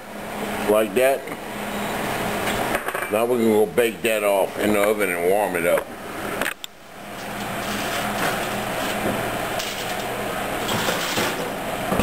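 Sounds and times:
electric range humming: 0.0 - 12.0
foil tray sliding onto rack: 10.6 - 11.5.

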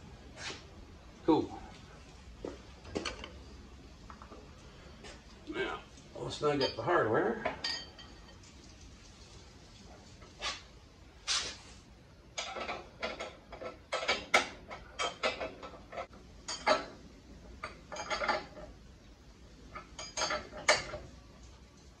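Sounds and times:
metal hardware and tools clinking: 6.5 - 8.5, 12.4 - 17.0, 17.6 - 18.7, 19.7 - 21.1.

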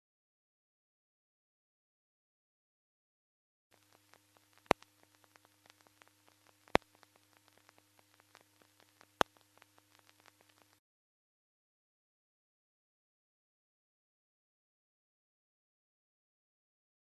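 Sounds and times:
faint crackle: 3.7 - 10.8
low electrical hum: 3.7 - 10.8.

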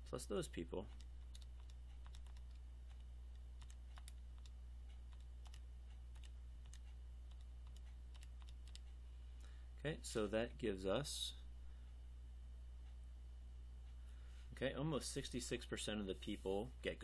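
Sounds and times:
low electrical hum: 0.0 - 17.0
calculator keys clicking: 0.9 - 2.6, 3.6 - 4.5, 6.2 - 8.8.

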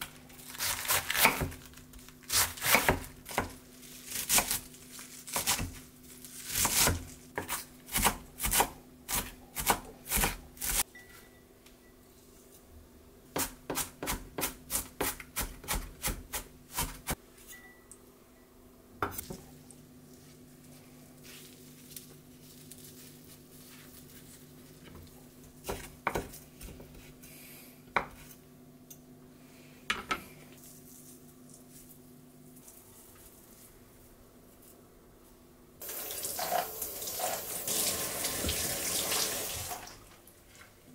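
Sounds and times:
knife chopping on wooden board: 6.5 - 10.8, 13.4 - 17.2, 25.6 - 27.0.

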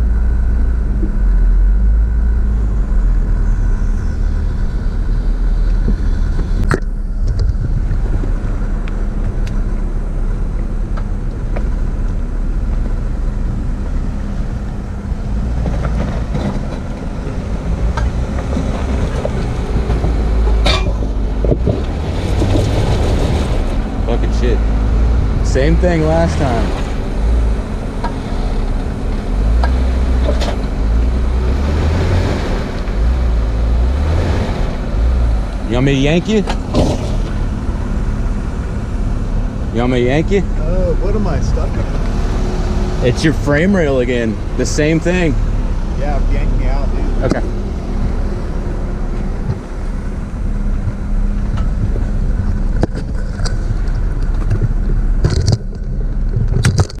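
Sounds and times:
car engine rumbling under load: 0.0 - 57.0
sharp clicks and knocks: 50.8 - 57.0.

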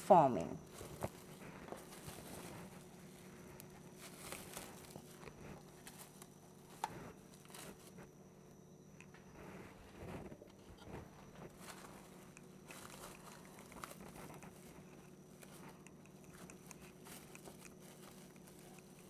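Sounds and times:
steady low hum: 0.0 - 19.0
plastic wrap crinkling: 0.7 - 6.4, 11.4 - 15.6, 16.2 - 19.0.

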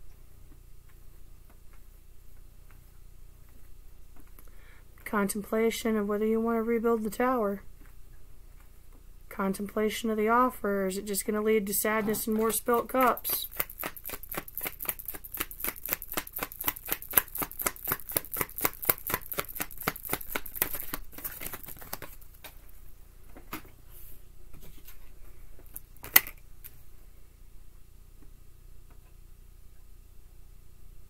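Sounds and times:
cards being shuffled: 12.0 - 22.7.

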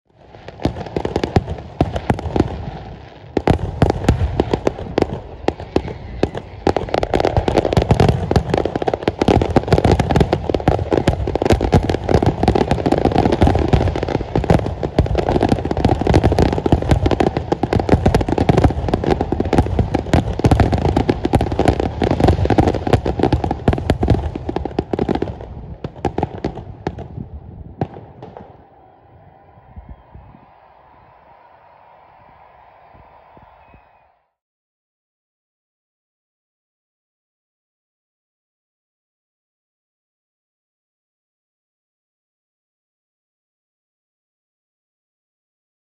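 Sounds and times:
fireworks bursting: 0.2 - 32.4.

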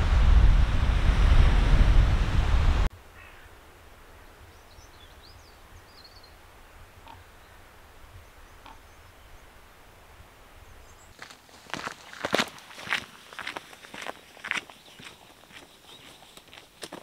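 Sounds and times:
wind buffeting microphone: 0.0 - 2.9.

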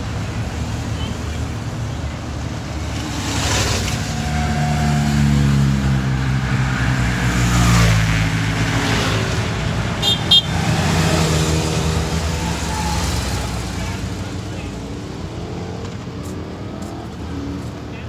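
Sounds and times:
cars driving past: 0.0 - 18.0
car horn toots: 10.0 - 10.7.

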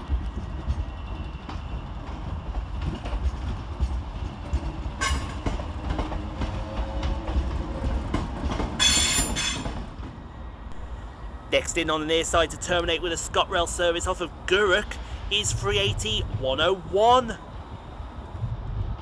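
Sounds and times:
low train rumble: 0.0 - 19.0
train wheels clacking over rail joints: 2.8 - 10.1.

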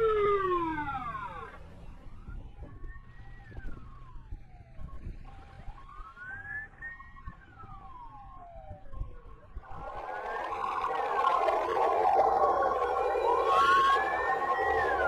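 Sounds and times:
emergency vehicle siren wailing: 0.0 - 15.0
faint steady tone: 0.0 - 15.0
loud rough noise: 9.6 - 15.0.

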